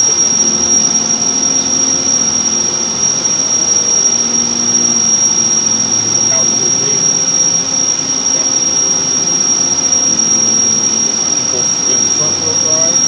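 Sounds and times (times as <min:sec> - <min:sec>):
high-pitched whine: 0:00.0 - 0:13.0
road noise: 0:04.9 - 0:13.0.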